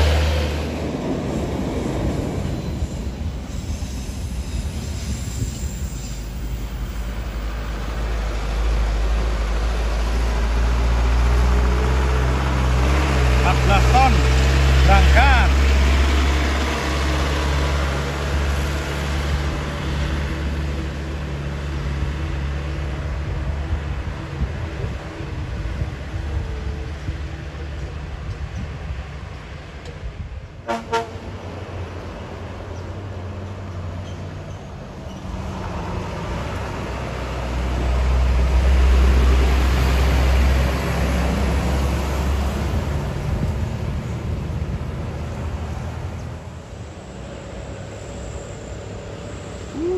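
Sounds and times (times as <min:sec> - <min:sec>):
bus diesel engine climbing: 0:00.0 - 0:49.9
diesel truck engine droning: 0:05.7 - 0:28.6.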